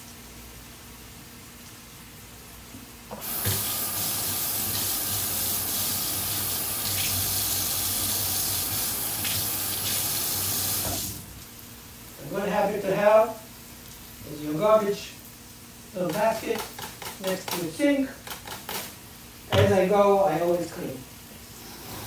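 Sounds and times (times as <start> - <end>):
faucet water splashing into sink: 3.2 - 11.2.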